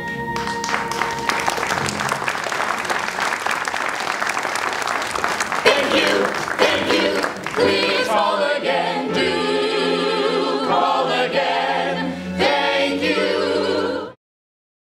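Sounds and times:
ensemble singing in harmony: 3.2s - 14.2s.

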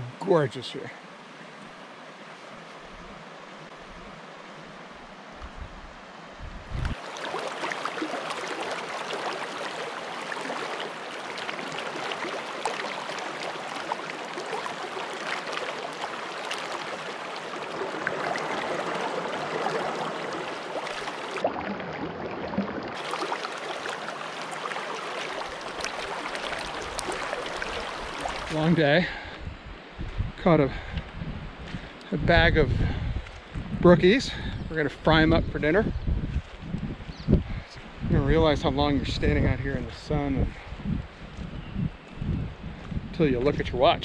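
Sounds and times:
creek water running over rocks: 6.8s - 29.3s.

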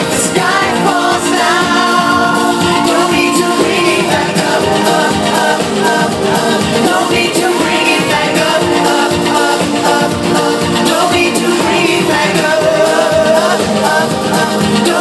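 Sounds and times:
live pop music: 0.0s - 15.0s
person singing: 0.0s - 15.0s.

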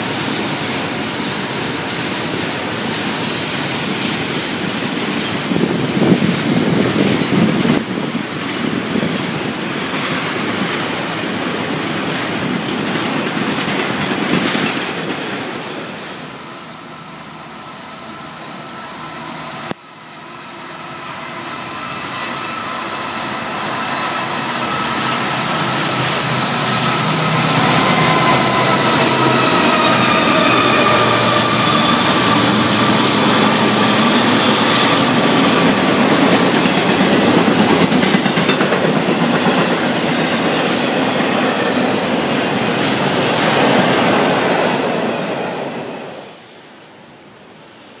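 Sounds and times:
train wheels clattering over rail joints: 0.0s - 16.4s, 24.6s - 44.4s
diesel locomotives rumbling: 0.0s - 47.6s.

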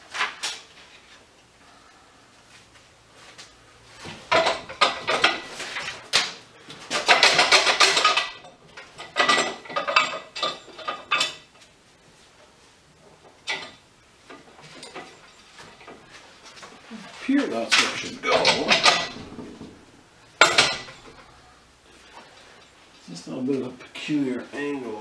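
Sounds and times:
steel parts clanking and rattling: 4.1s - 11.5s, 13.4s - 16.1s, 17.6s - 21.4s.

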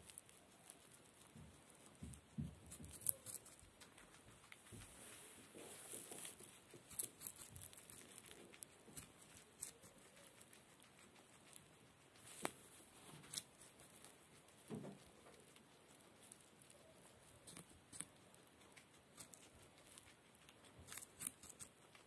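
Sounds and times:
guinea pig munching: 0.0s - 22.0s.

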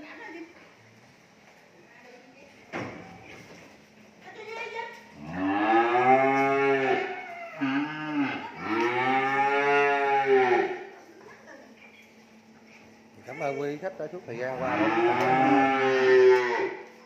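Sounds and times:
cattle mooing: 5.2s - 10.9s, 14.5s - 17.0s.

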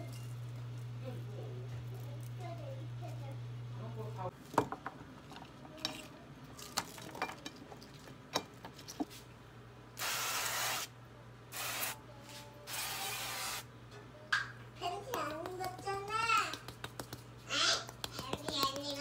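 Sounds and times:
spray can hissing: 10.0s - 10.9s, 11.5s - 12.0s, 12.7s - 13.7s
vegetables tapping on pan: 17.8s - 19.0s.

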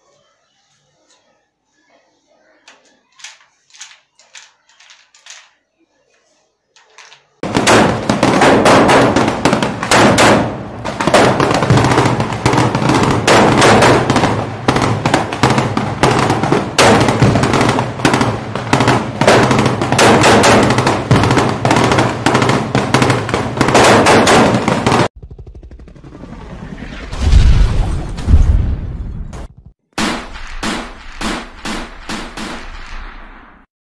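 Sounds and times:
automatic gunfire: 7.0s - 25.1s, 30.0s - 33.7s.

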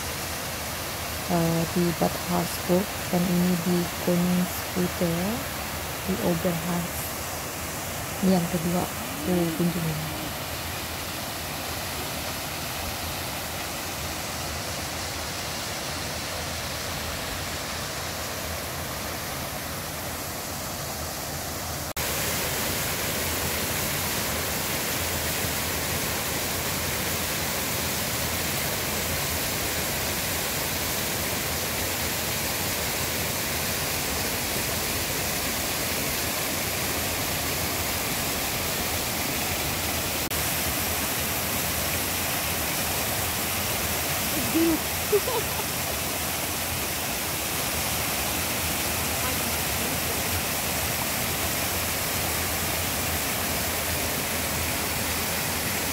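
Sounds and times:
waterfall splashing onto stones: 21.9s - 55.9s.

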